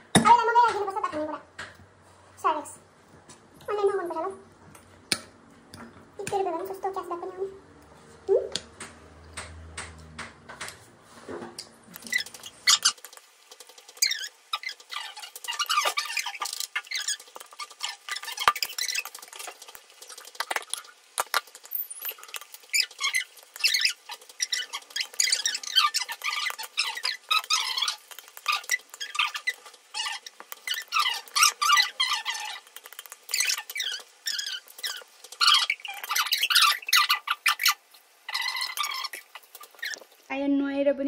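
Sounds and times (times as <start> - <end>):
wet chewing: 11.9 - 40.2.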